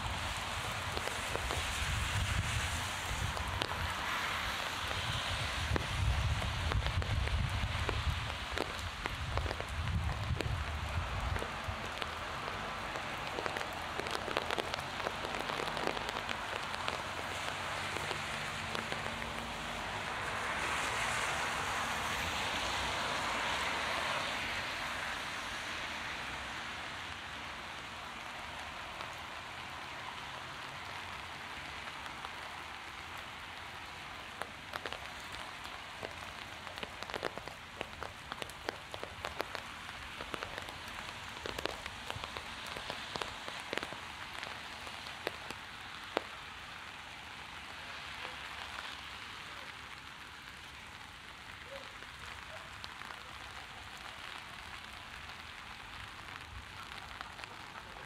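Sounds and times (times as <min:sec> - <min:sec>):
close raindrop impacts: 0:00.0 - 0:58.0
heavy rain hissing: 0:00.0 - 0:58.0.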